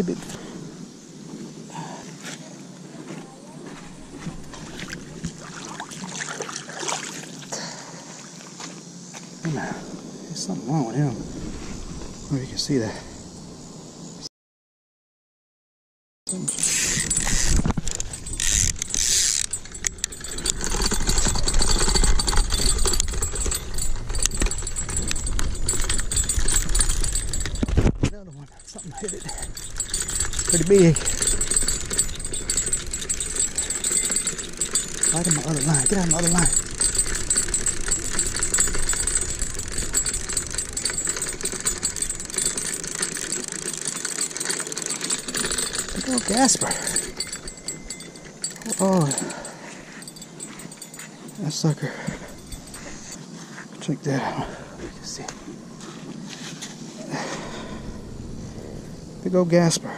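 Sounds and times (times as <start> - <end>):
metallic jingling and rattling: 16.3 - 53.4
low rumble of handling: 16.4 - 53.3.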